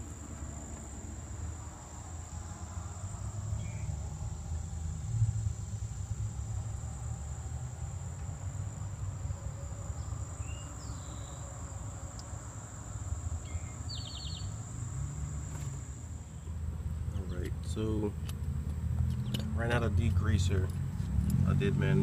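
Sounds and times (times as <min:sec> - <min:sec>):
insect trill: 0:00.0 - 0:22.0
bird chirps: 0:10.0 - 0:11.5, 0:13.4 - 0:14.6.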